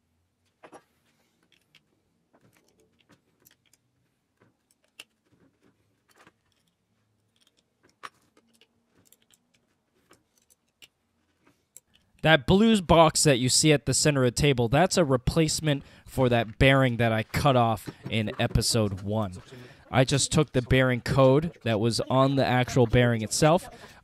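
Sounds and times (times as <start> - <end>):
small metal parts clicking and tapping: 1.4 - 11.0.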